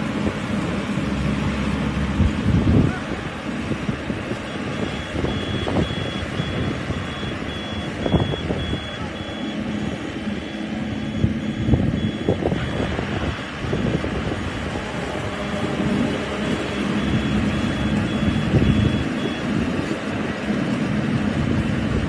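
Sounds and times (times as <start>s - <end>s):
combine harvester engine drone: 0.0s - 22.0s
wind buffeting microphone: 0.0s - 22.0s
warning beeper short high beeps: 4.5s - 13.0s, 16.2s - 19.5s.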